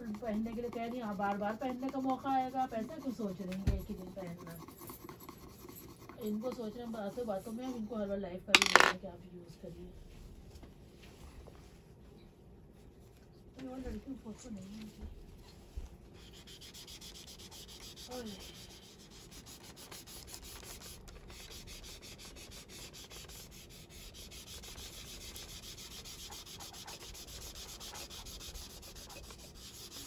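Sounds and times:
tissue rubbing on paper: 0:10.4 - 0:12.0, 0:12.7 - 0:30.0.

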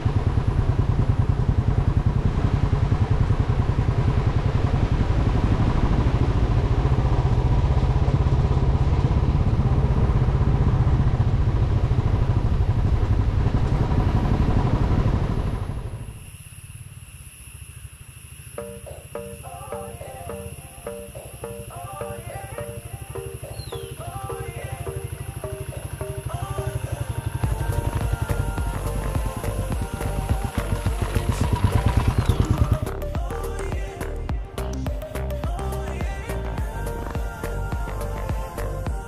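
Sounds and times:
motorcycle engine running: 0:00.0 - 0:16.2, 0:21.1 - 0:39.0
wind and road noise: 0:00.0 - 0:18.5, 0:27.2 - 0:35.3
steady high-pitched tones: 0:15.8 - 0:39.0.

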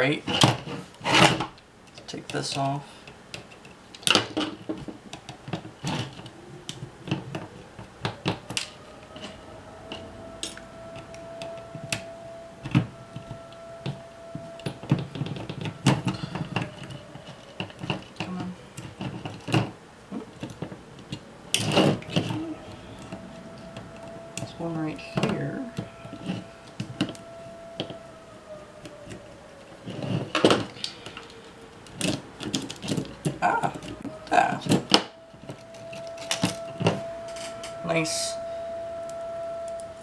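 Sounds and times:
tiny parts clicking and scraping: 0:00.3 - 0:28.2, 0:28.8 - 0:38.0.

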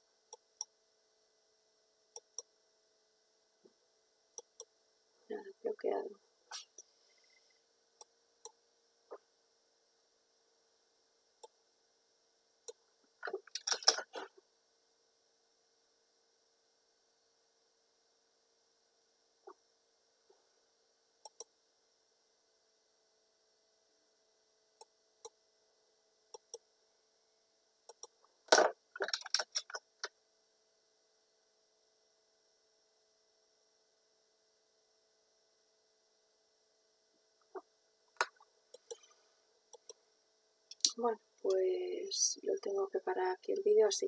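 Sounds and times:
faint electrical hum: 0:00.0 - 0:44.0
computer mouse clicks: 0:02.2 - 0:02.5, 0:04.4 - 0:04.7, 0:21.2 - 0:21.5, 0:26.3 - 0:26.6, 0:27.9 - 0:29.8, 0:38.2 - 0:39.1, 0:39.7 - 0:40.0.

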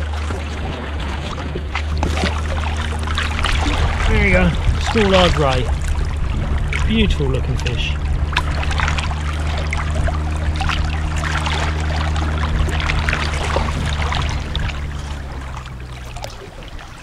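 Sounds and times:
steady low drone: 0:00.0 - 0:17.0
water lapping against kayak hull: 0:00.0 - 0:17.0
wind on microphone: 0:00.0 - 0:17.0.

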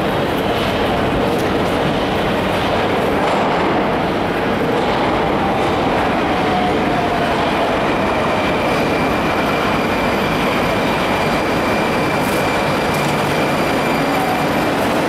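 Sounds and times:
train wheels rumbling: 0:00.0 - 0:15.0.

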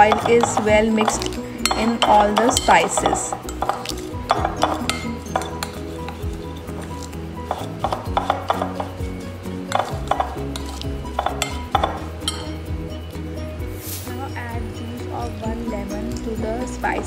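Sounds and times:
metal spoon scraping glass bowl: 0:00.0 - 0:09.0, 0:09.6 - 0:12.7.

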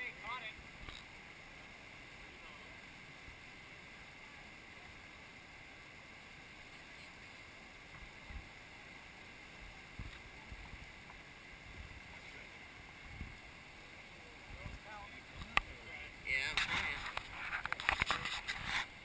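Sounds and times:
river rushing over rapids: 0:00.0 - 0:19.0
wind thumps on microphone: 0:13.0 - 0:13.4.

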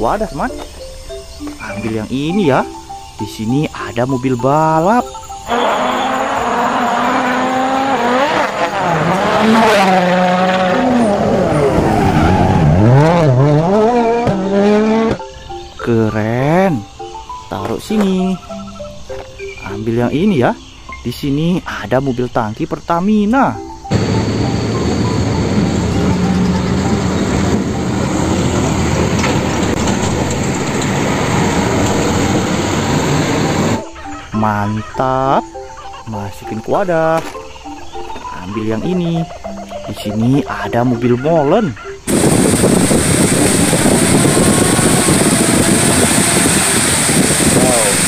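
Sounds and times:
trucks driving past: 0:05.4 - 0:15.6, 0:23.8 - 0:33.9
rally car engine revving: 0:05.5 - 0:15.2, 0:23.9 - 0:33.8, 0:42.1 - 0:48.0
motor scooter: 0:05.5 - 0:15.3, 0:23.9 - 0:33.8, 0:42.0 - 0:48.0
tyre noise: 0:05.5 - 0:15.4, 0:42.0 - 0:48.0.

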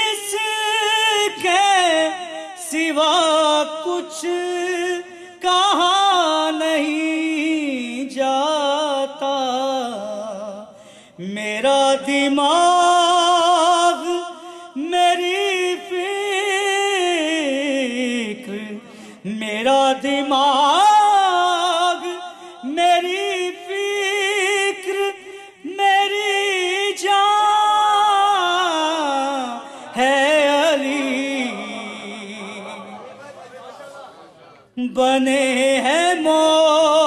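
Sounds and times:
man singing unaccompanied: 0:00.0 - 0:33.0, 0:34.8 - 0:37.0
singer breathing: 0:10.7 - 0:11.2, 0:14.4 - 0:14.8, 0:18.8 - 0:19.3, 0:29.6 - 0:30.0.

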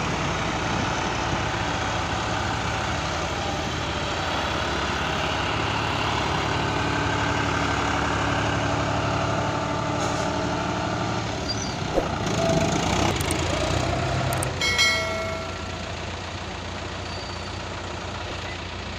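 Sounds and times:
combine harvester engine: 0:00.0 - 0:18.9
short high squeal: 0:11.4 - 0:12.1, 0:17.0 - 0:17.6.

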